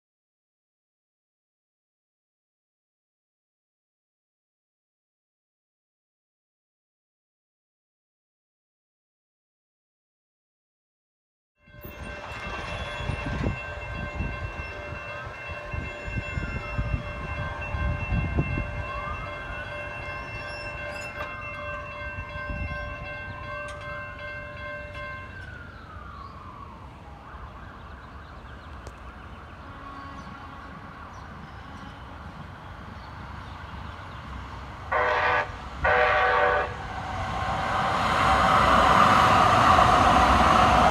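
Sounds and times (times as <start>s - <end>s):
siren wailing: 18.6s - 21.3s, 24.8s - 31.8s.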